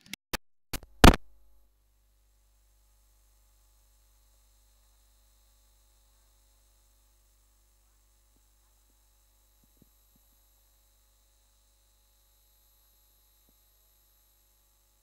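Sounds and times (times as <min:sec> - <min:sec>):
low electrical hum: 0:01.3 - 0:15.0.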